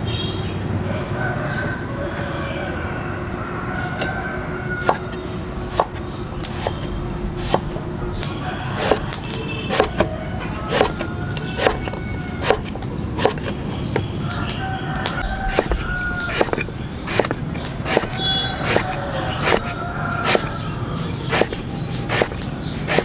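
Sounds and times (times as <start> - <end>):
sharp knocks: 15.1 - 20.5.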